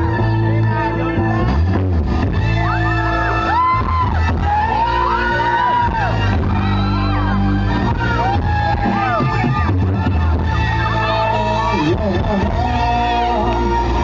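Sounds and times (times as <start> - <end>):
live band through a stage pa: 0.0 - 14.0.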